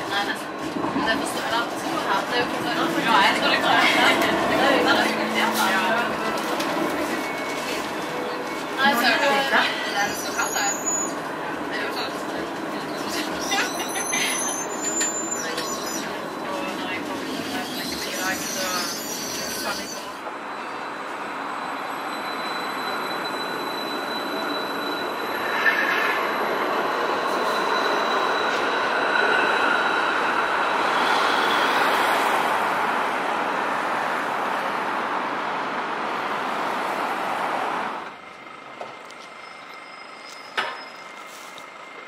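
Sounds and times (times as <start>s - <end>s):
tram running on track: 0.0s - 42.0s
high squeal: 9.9s - 11.3s, 12.8s - 16.2s, 17.2s - 29.8s, 39.3s - 41.6s.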